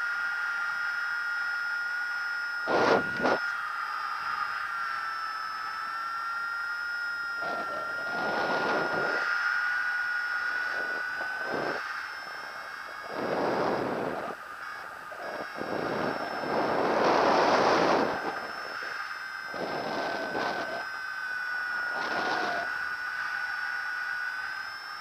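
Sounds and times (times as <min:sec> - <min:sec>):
thin high whine: 0:00.0 - 0:25.0
wind rushing over microphone: 0:10.6 - 0:11.8, 0:13.0 - 0:14.4, 0:15.1 - 0:18.9, 0:19.5 - 0:20.8.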